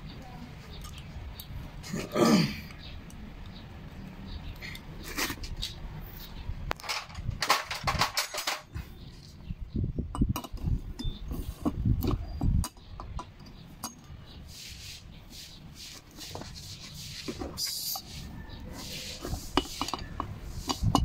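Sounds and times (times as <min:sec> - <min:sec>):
metal tools clinking: 0:06.8 - 0:08.8.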